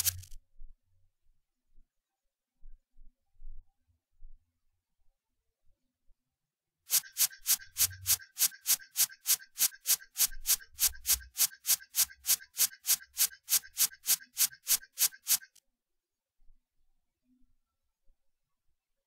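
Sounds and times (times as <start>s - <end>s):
typewriter keys clacking: 0.0s - 0.3s.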